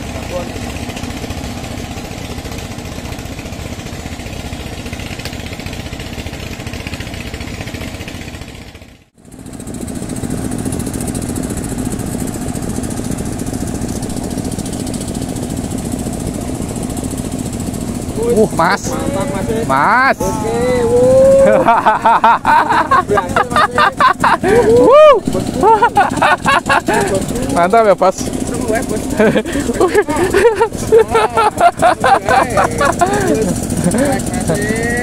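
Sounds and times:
engine running steadily: 0.0s - 35.0s.

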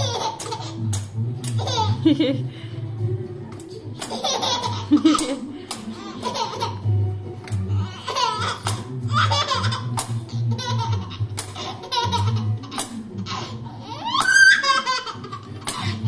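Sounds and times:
toddler boy giggling: 4.1s - 6.8s, 10.5s - 16.0s.

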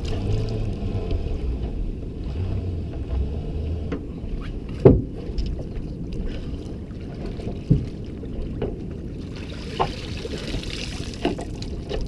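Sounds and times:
water splashing: 0.0s - 2.2s, 4.7s - 12.0s
low rumble of boat: 0.0s - 12.0s
knocks against boat hull: 4.8s - 5.2s.

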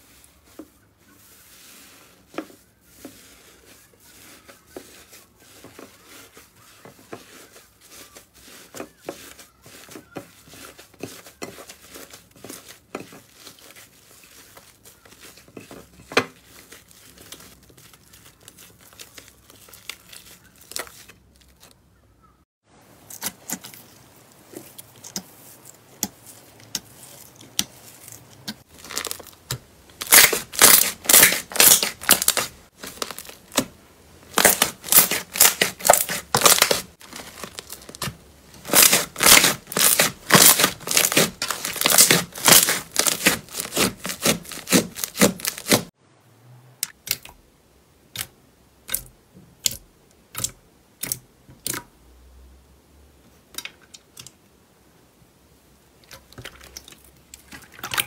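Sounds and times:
slime crackling and popping: 28.6s - 33.7s, 34.3s - 45.9s
slime squished by hand: 34.3s - 45.9s.

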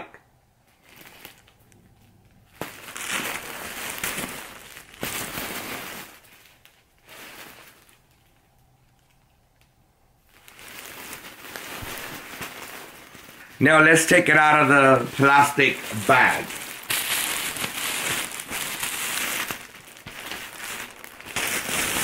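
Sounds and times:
plastic bag crinkling: 0.6s - 22.0s.

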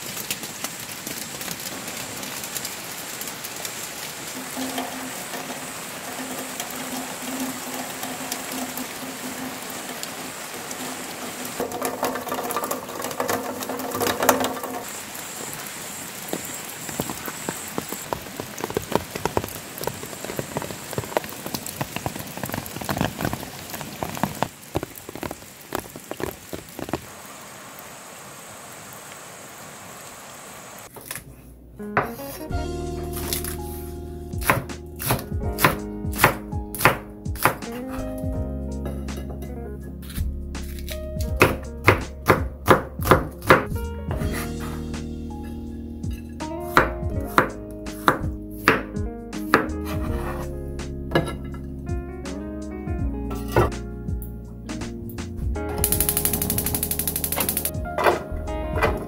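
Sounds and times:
rain falling on puddles and leaves: 0.0s - 30.9s, 32.5s - 38.4s, 55.8s - 59.0s
heavy drops splattering: 4.0s - 15.0s.

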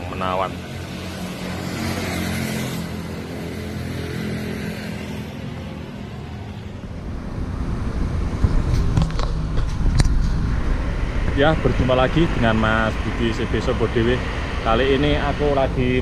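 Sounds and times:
road rumble: 0.0s - 16.0s
truck diesel engine hum: 6.3s - 16.0s.

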